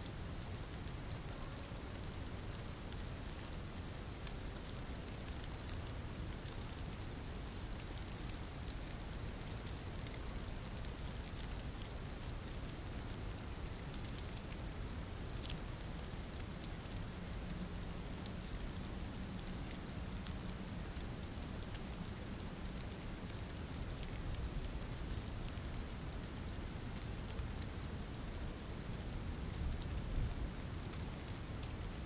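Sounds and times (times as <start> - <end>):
steady rain hiss: 0.0 - 32.0.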